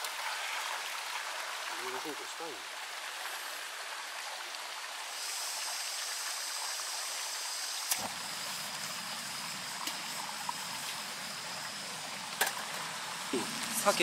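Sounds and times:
stream running: 0.0s - 14.0s.

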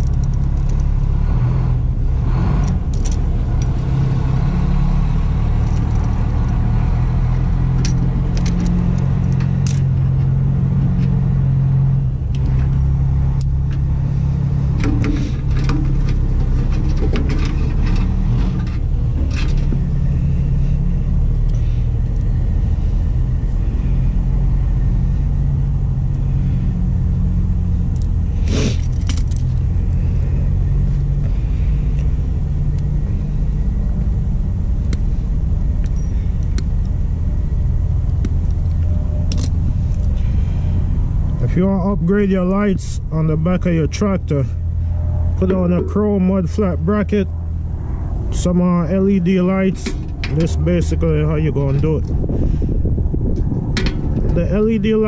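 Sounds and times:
engine idling: 0.0s - 55.0s
metallic clicks of pliers and connectors: 7.3s - 10.3s, 12.3s - 12.8s, 27.9s - 28.2s, 35.8s - 37.0s, 38.0s - 40.1s.

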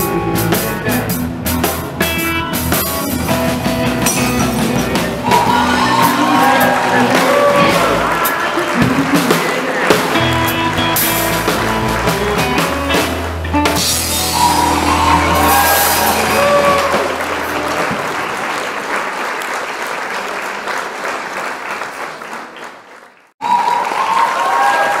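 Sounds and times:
different tune: 0.0s - 18.2s
live band playing: 0.0s - 18.7s
audience applause: 5.0s - 25.0s.

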